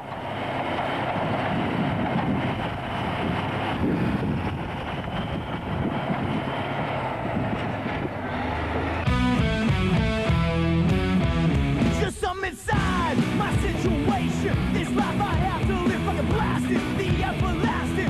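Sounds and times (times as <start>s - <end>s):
wheel loader engine rumbling: 0.0s - 18.0s
music: 9.0s - 18.0s.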